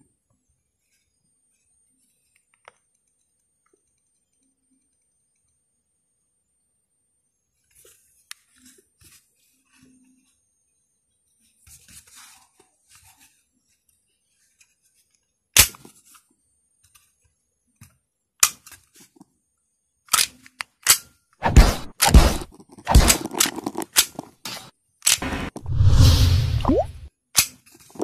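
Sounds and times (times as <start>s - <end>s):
clatter of pistol parts: 20.1s - 21.2s, 22.5s - 24.4s.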